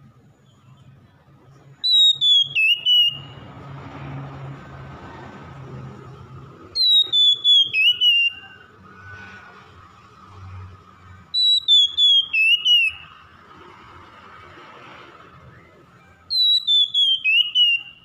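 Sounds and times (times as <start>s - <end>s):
bird whistled song: 1.7s - 3.5s, 6.7s - 8.8s, 11.3s - 13.3s, 15.4s - 18.0s.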